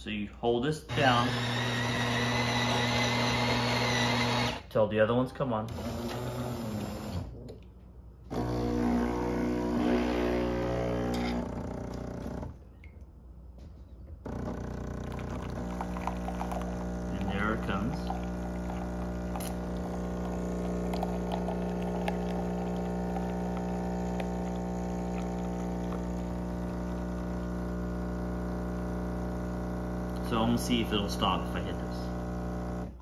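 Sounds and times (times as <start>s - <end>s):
espresso machine pump humming: 0.9s - 4.6s, 8.3s - 12.6s, 14.3s - 33.0s
coffee pouring into a mug: 14.4s - 32.4s.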